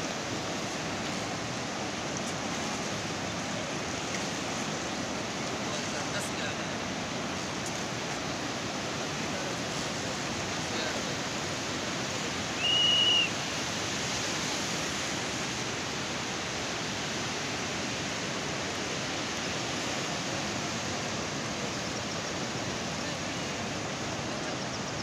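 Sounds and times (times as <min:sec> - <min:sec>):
flooded river rushing: 0:00.0 - 0:25.0
short high whistle-like tone: 0:12.6 - 0:13.4.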